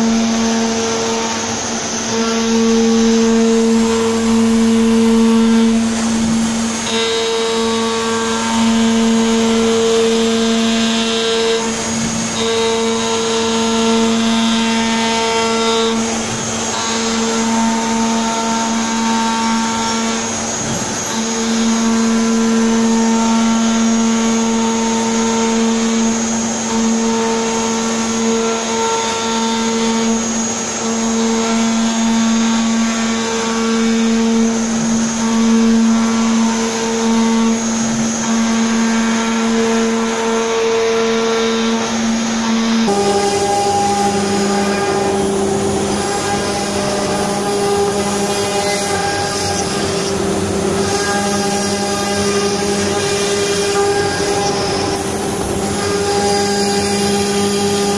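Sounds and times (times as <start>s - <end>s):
router spindle whine: 0.0s - 57.9s
dust extraction hissing: 41.1s - 57.9s.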